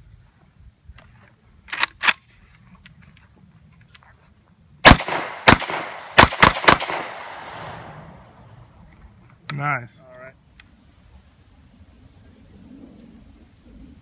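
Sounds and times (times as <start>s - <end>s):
shotgun blasts echoing: 4.8s - 8.4s.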